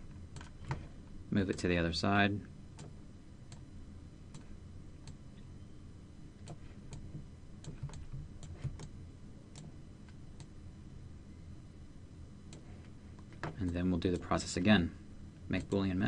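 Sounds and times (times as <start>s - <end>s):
low steady hum: 0.0s - 16.0s
light clicks of computer controls: 0.3s - 1.7s, 2.8s - 3.7s, 4.3s - 5.5s, 6.4s - 10.6s, 12.5s - 14.8s, 15.4s - 15.8s.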